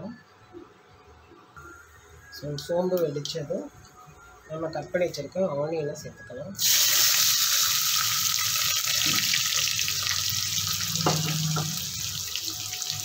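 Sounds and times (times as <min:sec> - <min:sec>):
onions sizzling in hot oil: 0:06.6 - 0:13.0.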